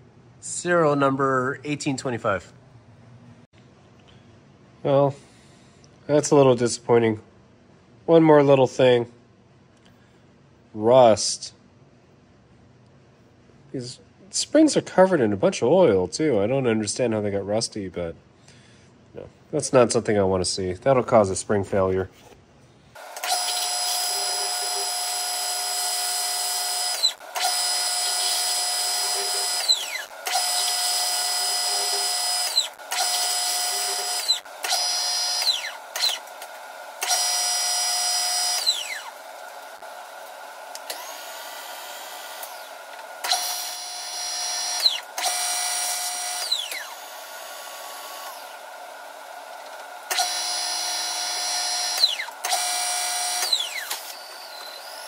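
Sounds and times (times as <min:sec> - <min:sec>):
power drill whining: 0:23.0 - 0:55.0.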